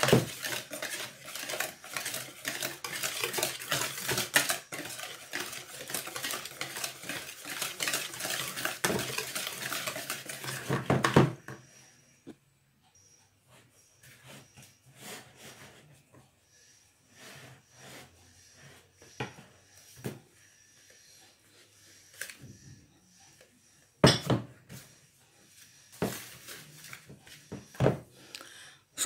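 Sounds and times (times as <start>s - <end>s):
whisk knocking on bowl: 0.0s - 11.3s
whisk scraping in plastic bowl: 0.0s - 11.4s.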